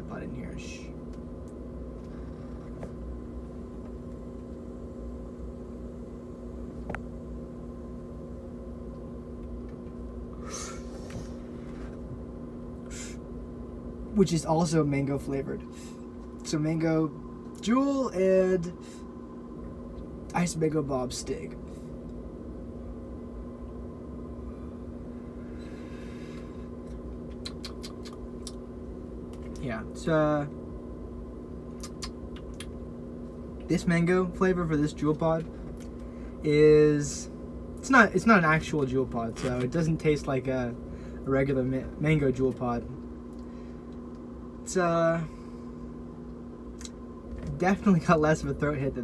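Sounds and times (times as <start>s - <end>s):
steady hum: 0.0s - 49.0s
person exhaling vapour: 10.4s - 11.8s, 12.8s - 13.2s.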